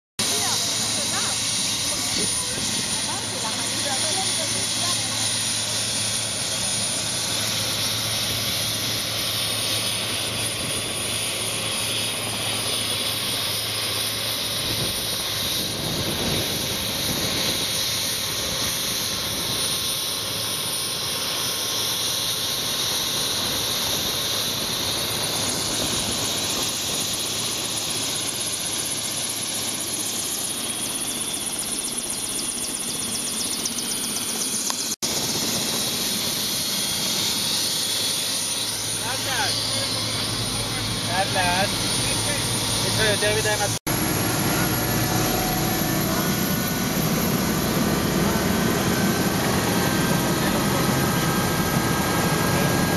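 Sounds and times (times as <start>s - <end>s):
helicopter rotor and engine: 0.2s - 52.9s
thin high whine: 0.2s - 52.9s.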